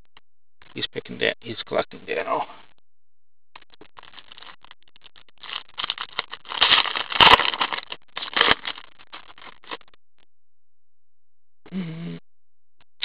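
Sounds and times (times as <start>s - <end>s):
foil wrapper crinkling: 3.8s - 9.8s.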